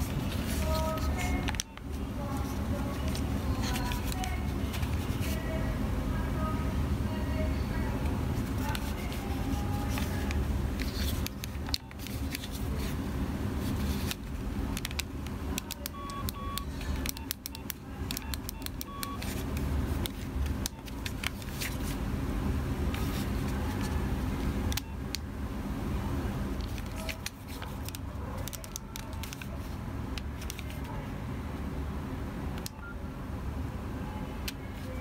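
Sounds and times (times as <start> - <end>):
phone keypad buttons clicking: 0.6 - 1.9, 14.7 - 19.4
short phone beeps: 15.9 - 19.2.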